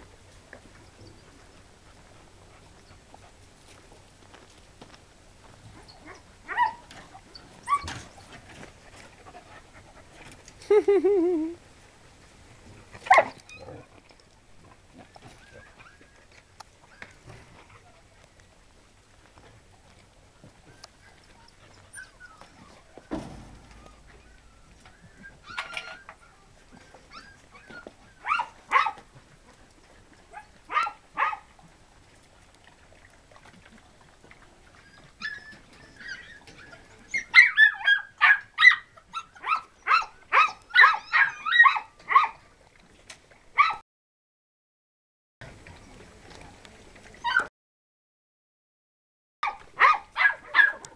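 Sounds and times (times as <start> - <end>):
dogs barking: 13.1 - 13.4, 28.2 - 29.0, 30.4 - 31.5, 37.3 - 42.4, 49.4 - 50.9
dull thump: 23.1 - 24.0.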